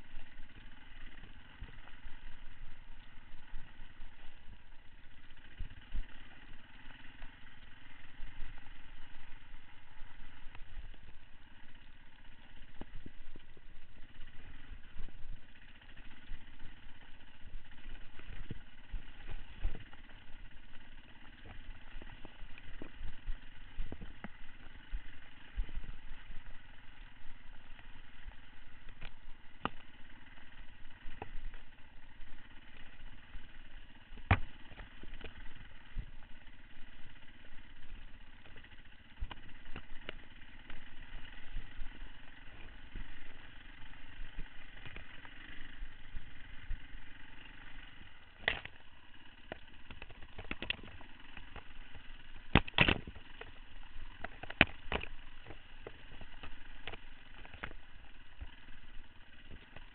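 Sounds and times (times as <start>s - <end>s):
bike knocking and rattling: 0.0s - 59.9s
motorcycle engine at low revs: 0.0s - 59.9s.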